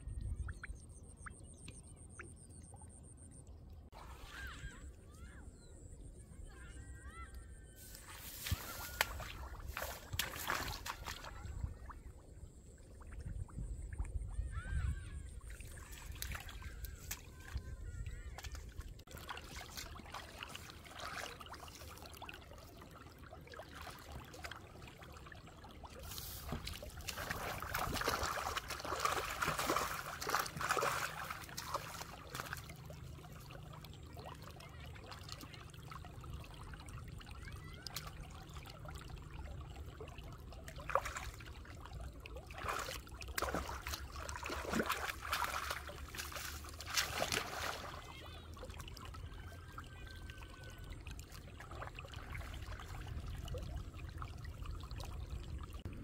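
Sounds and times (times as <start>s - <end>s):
hands splashing in muddy water: 7.8s - 12.0s, 15.4s - 34.4s, 40.7s - 49.1s.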